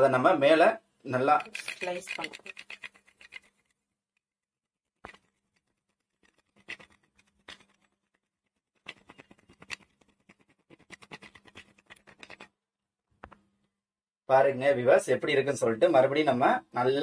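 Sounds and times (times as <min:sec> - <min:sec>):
chocolate scratching on metal strainer: 0:01.2 - 0:03.7, 0:05.0 - 0:12.5.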